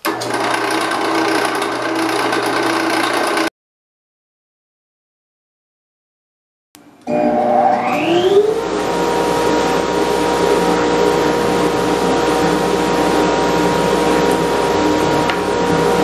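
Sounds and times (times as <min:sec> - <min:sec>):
bandsaw motor whine: 0:07.0 - 0:16.0.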